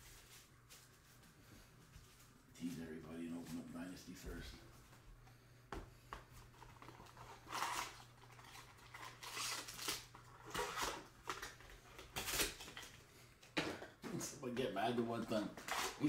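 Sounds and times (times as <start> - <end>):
foil wrapper crinkling: 6.6 - 13.0.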